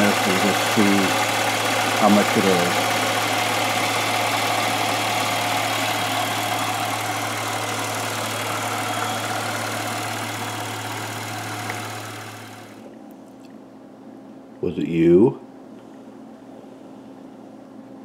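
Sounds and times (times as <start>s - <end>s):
car engine idling: 0.0s - 12.8s.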